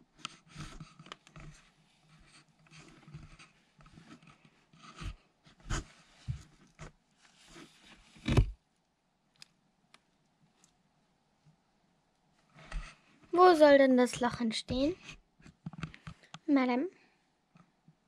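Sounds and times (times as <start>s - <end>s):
cat scraping on cardboard: 0.3s - 8.5s.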